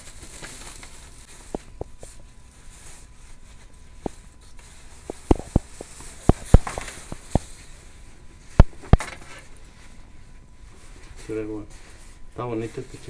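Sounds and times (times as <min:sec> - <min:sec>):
plastic bag rustling: 0:00.0 - 0:07.8.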